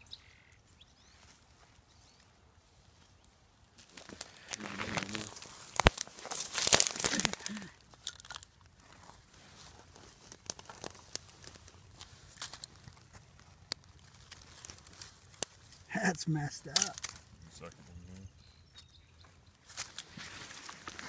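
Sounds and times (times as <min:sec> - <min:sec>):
footsteps on dry leaves: 0:03.8 - 0:08.0, 0:08.7 - 0:15.9, 0:19.6 - 0:21.0
twig cracking: 0:03.8 - 0:15.9, 0:16.7 - 0:17.9.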